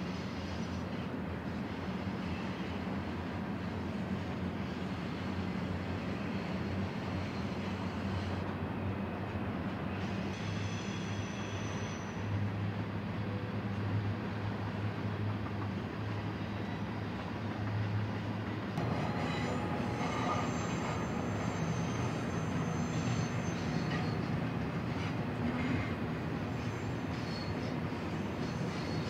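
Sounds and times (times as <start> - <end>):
freight train rumbling on rails: 0.0 - 29.0
wheels squealing: 18.8 - 29.0.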